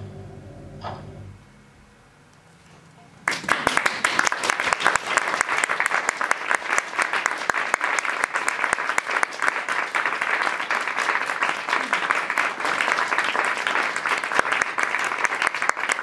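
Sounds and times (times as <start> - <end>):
audience clapping: 3.2 - 16.0.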